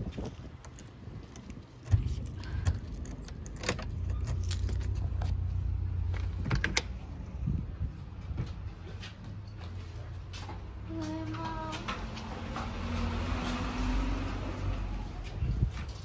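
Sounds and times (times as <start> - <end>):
car interior rumble: 0.0 - 13.7
sharp clicks and rattles: 0.2 - 7.1
keys jangling: 0.6 - 5.4.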